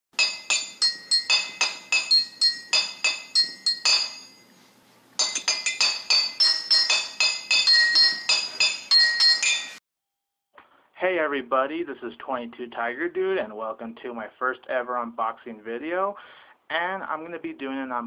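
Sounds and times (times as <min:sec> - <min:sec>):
bell-like struck notes music: 0:00.2 - 0:09.8.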